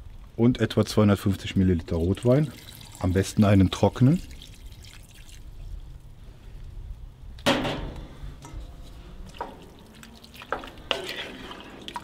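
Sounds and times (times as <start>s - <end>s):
loud clunk: 7.4s - 8.6s
wooden spoon knocking cast iron pot: 9.3s - 9.8s.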